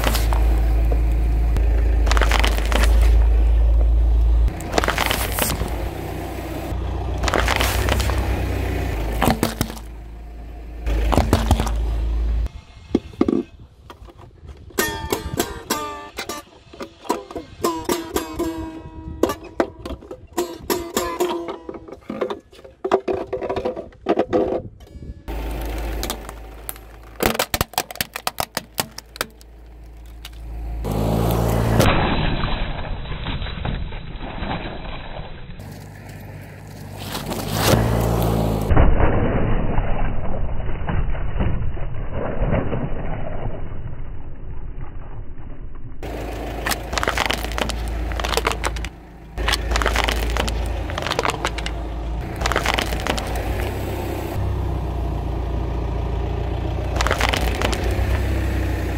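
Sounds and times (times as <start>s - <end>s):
tyre crushing objects: 0.0s - 3.4s, 4.5s - 6.0s, 7.1s - 10.0s, 10.8s - 12.2s, 25.3s - 35.0s, 35.6s - 38.7s, 46.0s - 54.4s, 56.9s - 58.5s
low car rumble: 0.0s - 58.9s.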